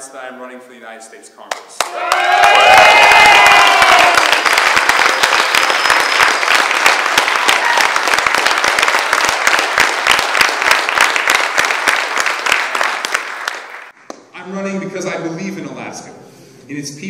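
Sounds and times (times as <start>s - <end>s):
audience clapping and cheering: 1.5s - 14.0s
whoops: 1.8s - 4.5s, 7.2s - 8.1s.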